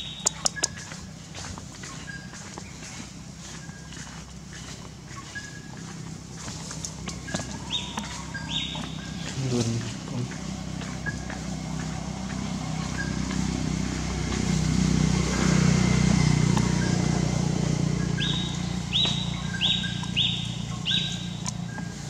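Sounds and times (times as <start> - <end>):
low droning hum: 0.0 - 22.0
high-pitched animal calls: 6.4 - 11.6, 16.7 - 22.0.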